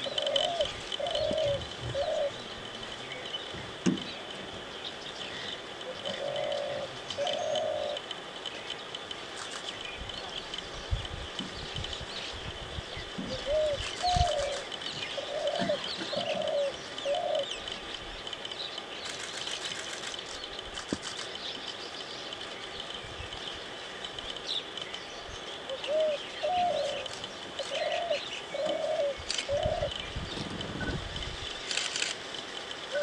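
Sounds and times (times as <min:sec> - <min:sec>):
dove cooing: 0:00.0 - 0:02.5, 0:05.9 - 0:08.0, 0:13.2 - 0:17.5, 0:25.7 - 0:30.0
small birds chirping: 0:00.0 - 0:33.0.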